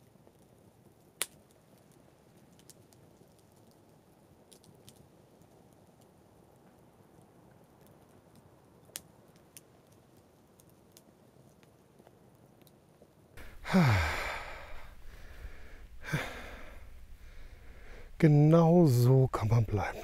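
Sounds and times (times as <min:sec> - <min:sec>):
man sighing: 0:13.4 - 0:18.2.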